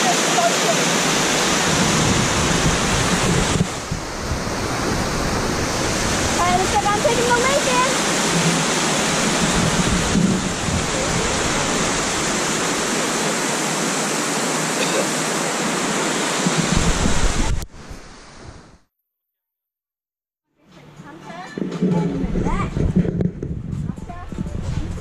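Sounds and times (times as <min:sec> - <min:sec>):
stream rushing over rock: 0:00.0 - 0:18.3.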